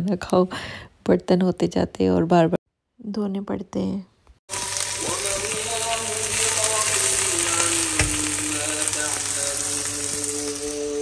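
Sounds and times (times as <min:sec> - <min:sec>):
okra sizzling in oil: 0:04.5 - 0:11.0.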